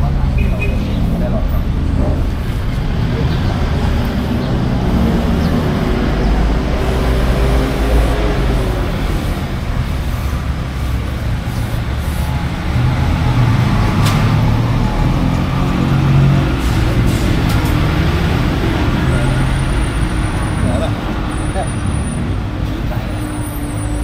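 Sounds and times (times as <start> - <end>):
vehicle engines rumbling: 0.0 - 24.0.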